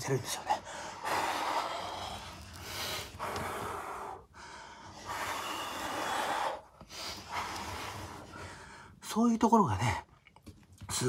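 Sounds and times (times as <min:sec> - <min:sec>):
man breathing heavily: 0:00.4 - 0:09.0.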